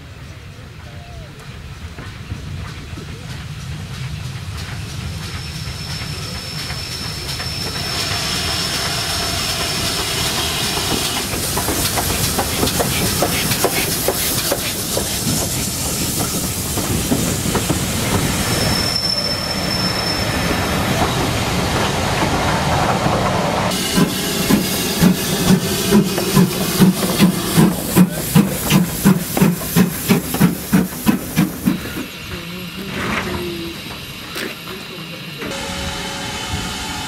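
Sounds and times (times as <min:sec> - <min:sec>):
steam locomotive passing: 0:00.0 - 0:37.0
high wheel squeal: 0:05.3 - 0:14.4, 0:15.8 - 0:22.7, 0:23.7 - 0:28.5.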